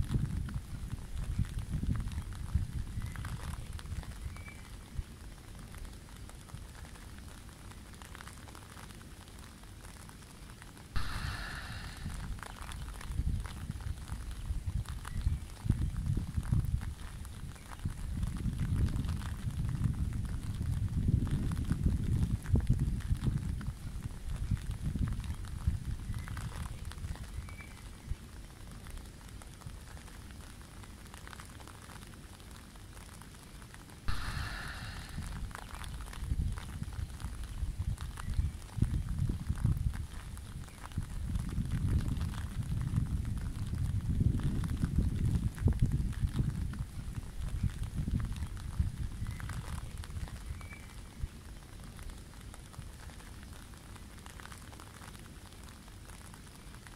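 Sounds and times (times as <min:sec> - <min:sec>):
light crackles: 0:00.0 - 0:56.9
light rain pattering on river: 0:00.0 - 0:56.9
wind rumbling on microphone: 0:00.0 - 0:56.9
flowing river water: 0:06.3 - 0:13.0, 0:30.6 - 0:36.2.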